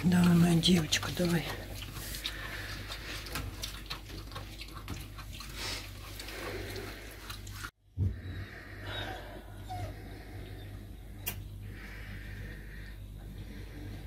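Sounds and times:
puppy chewing wet smacks: 1.1 - 6.3.

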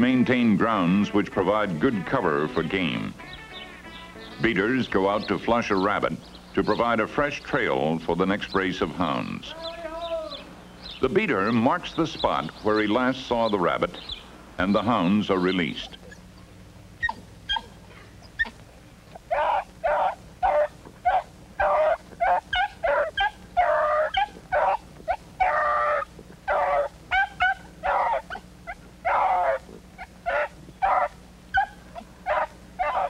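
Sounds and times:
dogs baying and yelping: 15.8 - 33.0.

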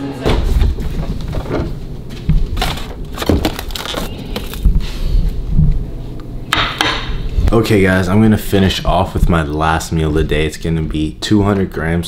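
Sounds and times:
packaging crinkling: 2.6 - 4.7.

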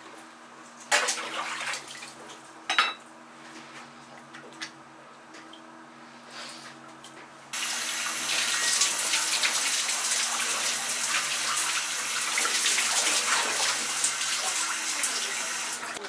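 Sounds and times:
tap water running into metal sink: 7.6 - 16.0.

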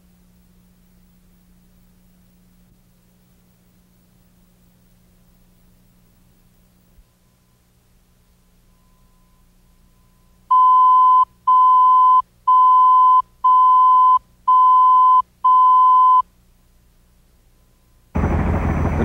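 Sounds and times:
high-pitched countdown beeps: 10.5 - 16.2.

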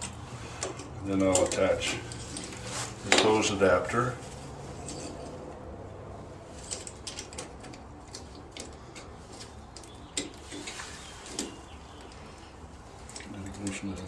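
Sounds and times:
metal pipe fittings clinking: 0.0 - 3.6, 4.8 - 5.4.

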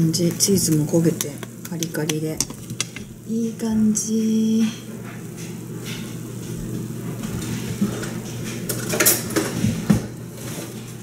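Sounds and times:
steady low hum: 0.0 - 8.6
dishes and utensils clattering: 7.8 - 10.7.

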